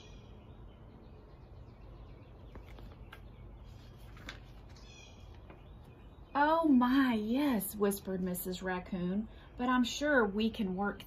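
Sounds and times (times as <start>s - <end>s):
faint birds chirping: 0.0s - 11.0s
low steady outdoor hum: 0.0s - 11.0s
book page turning rustle: 2.5s - 5.7s.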